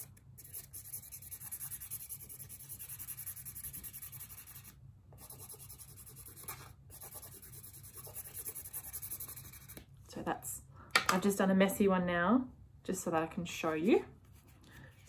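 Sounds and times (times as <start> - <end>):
felt-tip marker scribbling on card: 0.0 - 9.8.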